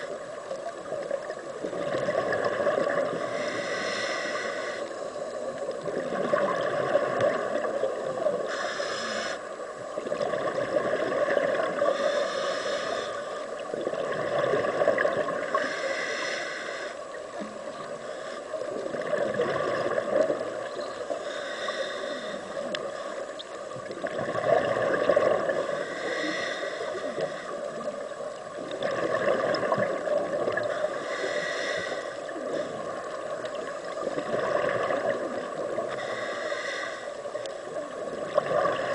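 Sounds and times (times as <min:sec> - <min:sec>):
bubbles gurgling underwater: 0:00.6 - 0:03.2, 0:05.5 - 0:08.4, 0:09.9 - 0:11.9, 0:13.6 - 0:15.6, 0:18.6 - 0:20.8, 0:23.7 - 0:25.7, 0:28.5 - 0:30.8, 0:32.3 - 0:36.0, 0:37.8 - 0:38.9
scuba regulator breathing: 0:02.6 - 0:05.5, 0:08.2 - 0:09.7, 0:11.7 - 0:13.7, 0:15.3 - 0:19.1, 0:20.9 - 0:23.5, 0:25.0 - 0:28.2, 0:30.5 - 0:33.7, 0:35.8 - 0:37.8.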